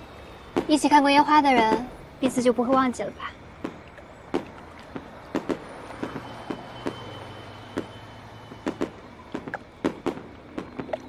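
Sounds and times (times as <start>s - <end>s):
fireworks popping and banging: 3.6s - 11.0s.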